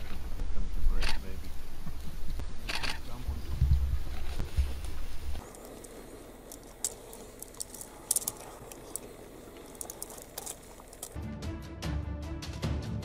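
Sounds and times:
sharp clicks and crackles of chewing: 5.4 - 11.2.

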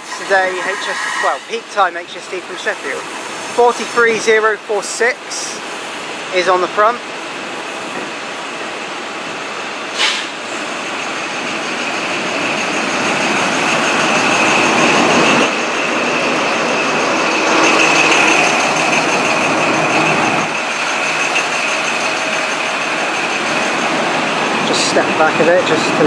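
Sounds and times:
diesel train passing: 0.0 - 26.0
train coaches rolling: 0.0 - 26.0
steady high whine: 10.5 - 26.0.

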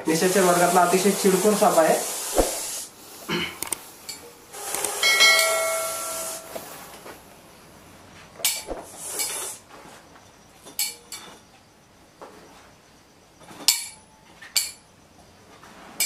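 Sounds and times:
snake hissing loudly: 0.0 - 5.2, 8.8 - 9.6.

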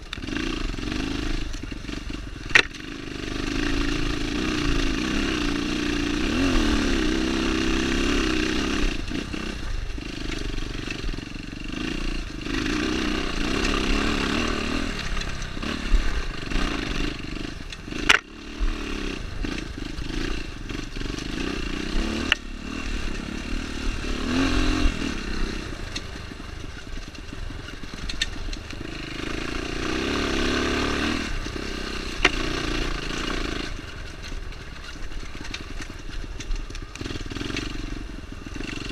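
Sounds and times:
dirt bike engine revving: 0.0 - 38.9
bike clattering over stones: 34.0 - 37.6.

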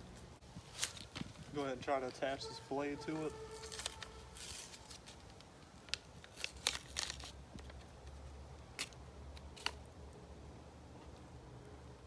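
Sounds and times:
plastic packaging crackling: 3.1 - 8.0.

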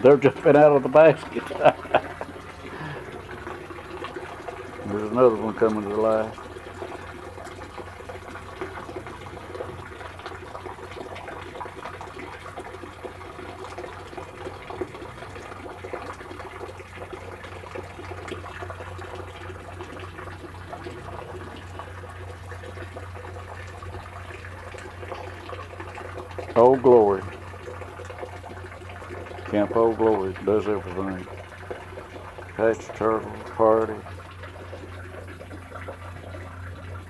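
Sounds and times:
trickle of running water: 0.0 - 37.0.

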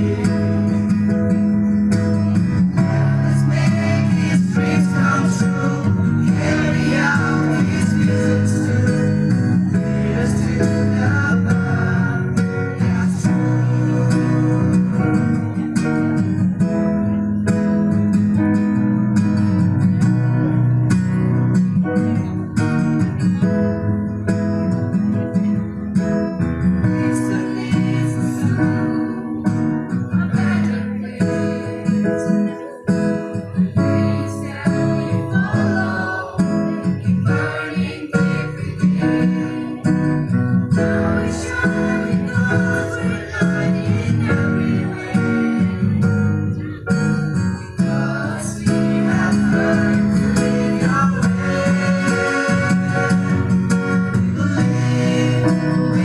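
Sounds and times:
young voices singing together: 0.0 - 1.0, 2.7 - 15.6, 26.9 - 32.8, 33.7 - 46.1, 47.7 - 56.0
strummed acoustic guitar: 0.0 - 56.0.

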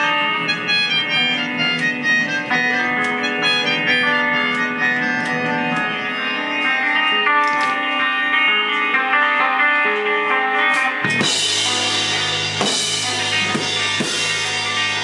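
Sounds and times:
melodica playing: 0.0 - 9.6.

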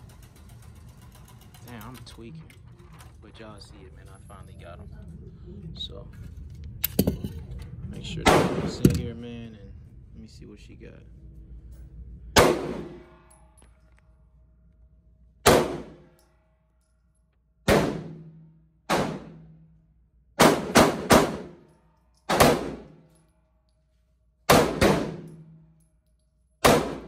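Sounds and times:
pistol shots echoing indoors: 8.2 - 8.9, 12.3 - 13.6, 15.3 - 16.4, 17.6 - 23.4, 24.4 - 27.0.

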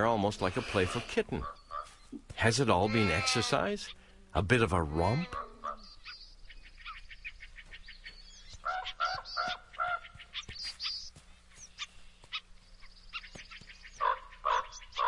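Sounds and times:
birds chirping: 0.0 - 15.0
repeated bird calls: 0.0 - 15.0
thin bird trills: 5.2 - 15.0.

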